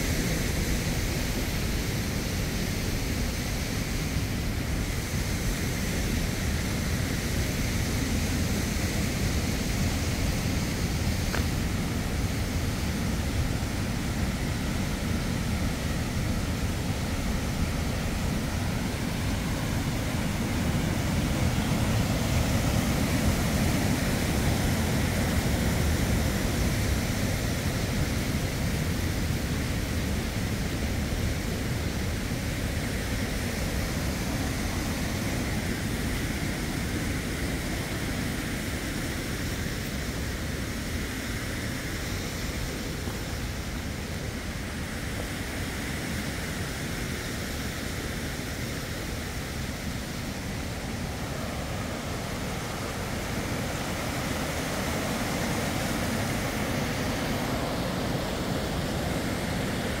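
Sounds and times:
creek rushing over rocks: 0.0 - 60.0.

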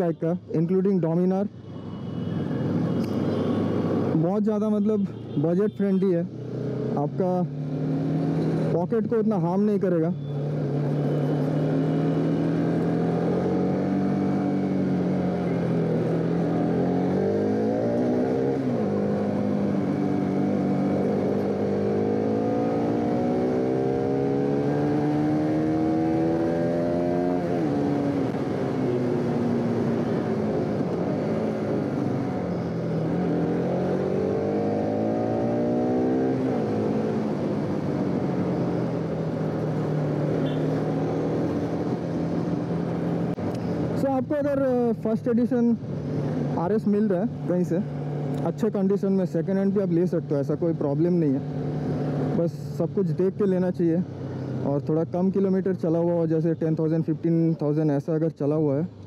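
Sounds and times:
motorcycle engine revving: 6.3 - 8.8, 10.2 - 45.2.

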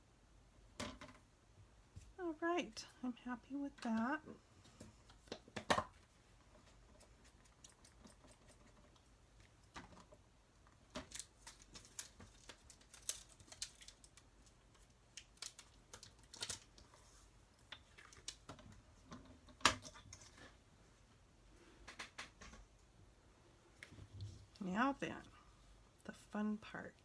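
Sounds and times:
paper rustling: 10.9 - 17.3.

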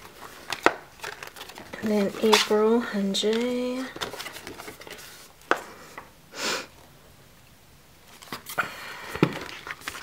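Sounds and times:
page flipping over spiral binding: 0.0 - 5.6, 9.2 - 10.0.

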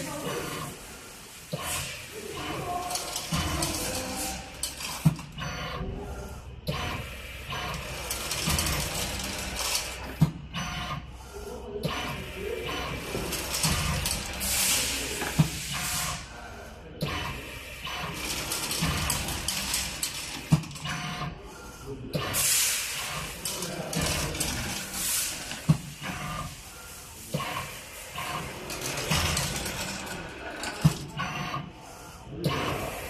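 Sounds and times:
machine hissing: 0.0 - 33.0
machine clicking: 1.6 - 5.8, 6.7 - 10.5, 17.0 - 21.3, 22.2 - 26.5, 27.3 - 31.6.

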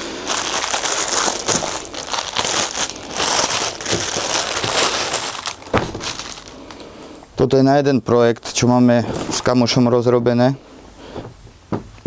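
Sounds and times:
plastic bag crinkling: 0.0 - 7.2, 9.1 - 9.8.

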